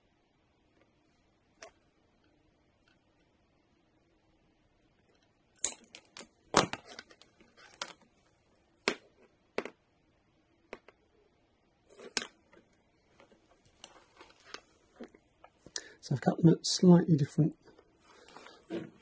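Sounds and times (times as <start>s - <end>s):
cable handling: 5.2s - 8.2s, 11.9s - 15.8s.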